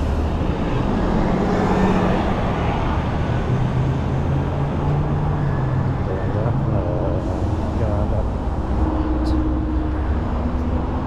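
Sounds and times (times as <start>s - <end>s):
bus engine humming: 0.0s - 11.0s
road traffic noise: 0.0s - 11.0s.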